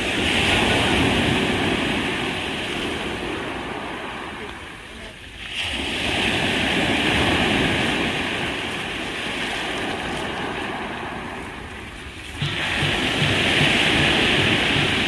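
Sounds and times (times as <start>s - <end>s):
foam washing up pebble beach: 0.0s - 15.0s
wave breaking: 0.0s - 15.0s.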